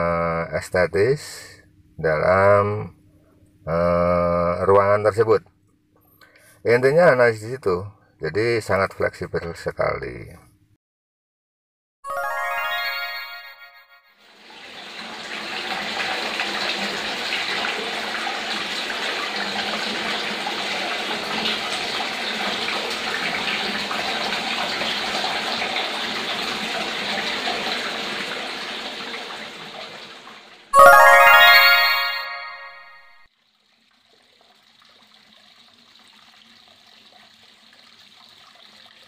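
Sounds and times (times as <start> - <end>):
water splashing into pond: 33.3 - 39.0.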